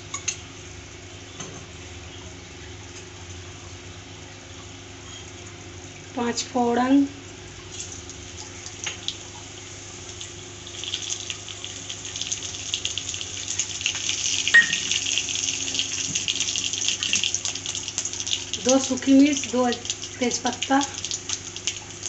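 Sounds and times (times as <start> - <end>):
seeds sizzling in hot oil: 7.6 - 22.0.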